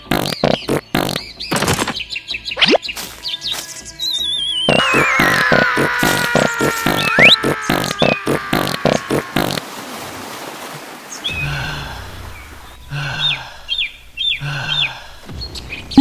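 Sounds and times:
creature chirping calls: 0.0s - 1.2s, 2.6s - 2.8s, 4.6s - 9.6s
rhythmic pulsing sound: 0.0s - 1.2s, 4.7s - 9.6s.

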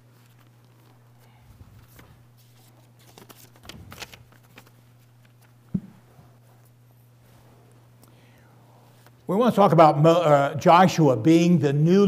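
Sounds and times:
pages being turned: 0.0s - 5.9s
low electrical hum: 0.0s - 12.0s.

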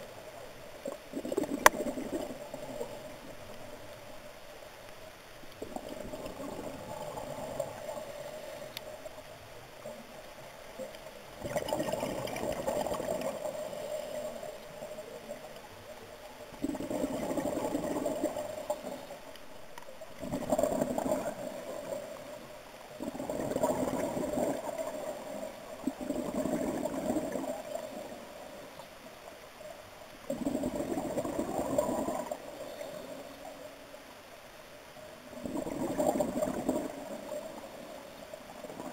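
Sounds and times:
bubbling exhalations underwater: 11.4s - 13.7s, 16.6s - 18.8s, 25.8s - 27.8s, 30.3s - 32.4s.

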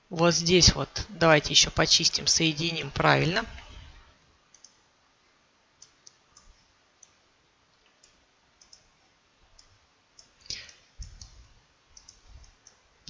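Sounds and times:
computer mouse clicking: 4.5s - 4.8s, 5.8s - 7.2s, 7.8s - 8.9s, 9.5s - 11.4s, 12.0s - 12.8s.

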